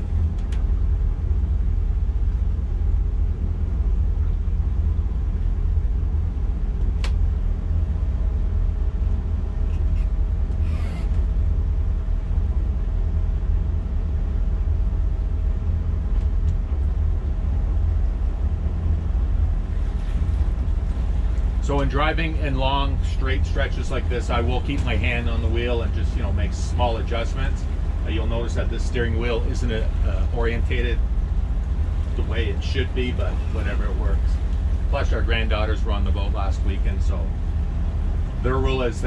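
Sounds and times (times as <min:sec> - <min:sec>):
boat engines deep rumble: 0:00.0 - 0:39.0
sharp click: 0:06.8 - 0:07.2.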